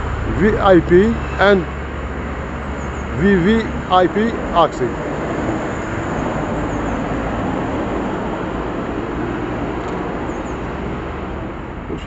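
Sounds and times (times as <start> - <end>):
faint engine hum: 0.0 - 8.6
road traffic rumble: 0.0 - 12.0.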